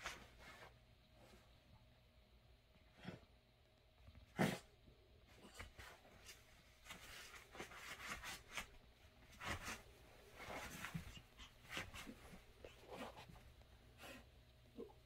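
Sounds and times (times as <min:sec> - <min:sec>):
dog snorts: 0:04.3 - 0:04.7
dogs scuffling on bed covers: 0:05.5 - 0:13.5.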